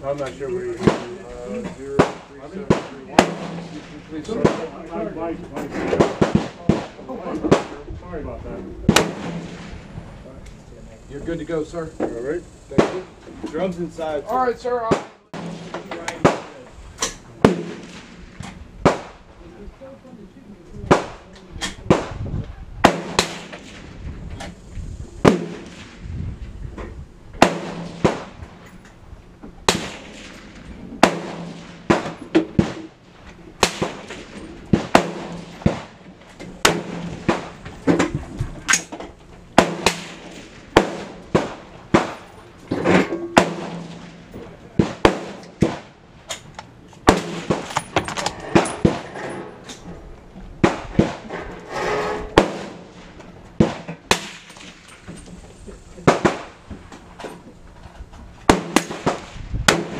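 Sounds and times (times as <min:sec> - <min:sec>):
gunshots: 0:00.8 - 0:01.3, 0:02.0 - 0:04.8, 0:05.7 - 0:07.8, 0:08.9 - 0:10.0, 0:12.7 - 0:13.1, 0:14.8 - 0:19.3, 0:20.9 - 0:21.2, 0:21.8 - 0:24.1, 0:25.2 - 0:26.1, 0:27.4 - 0:28.5, 0:29.6 - 0:33.0, 0:33.6 - 0:46.0, 0:47.0 - 0:49.3, 0:50.6 - 0:51.3, 0:52.3 - 0:54.9, 0:56.0 - 0:56.7, 0:58.4 - 0:59.9.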